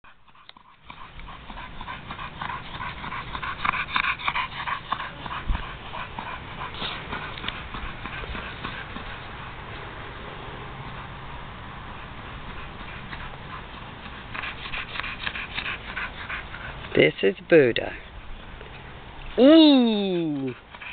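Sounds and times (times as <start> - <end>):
dog vocalizing excitedly: 0.0 - 9.2, 20.0 - 20.9.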